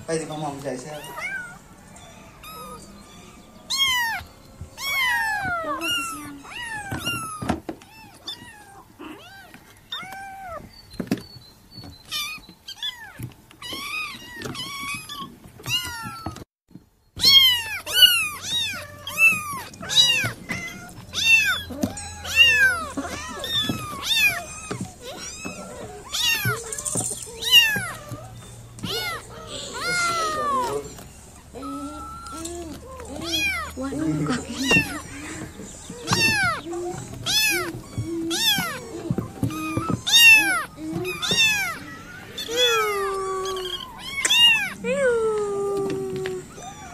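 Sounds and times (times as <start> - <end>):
kittens mewing: 0.0 - 10.8, 12.0 - 16.5, 17.2 - 46.9.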